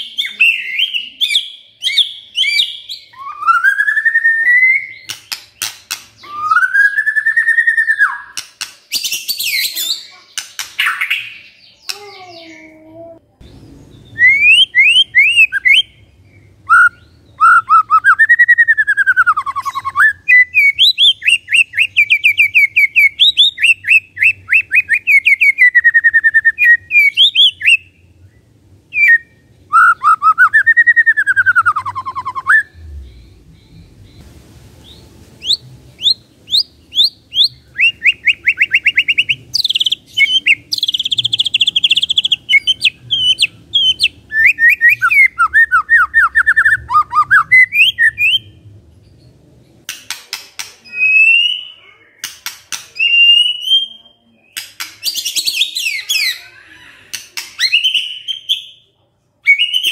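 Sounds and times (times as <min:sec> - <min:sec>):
bird singing stuttering trills: 0:00.0 - 0:49.4
bird slurred whistle: 0:14.2 - 0:15.9.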